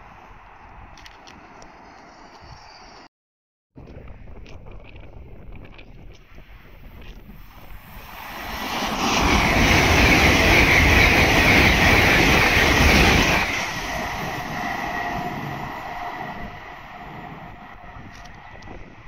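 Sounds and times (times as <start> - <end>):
high-speed train passing: 7.4 - 19.0.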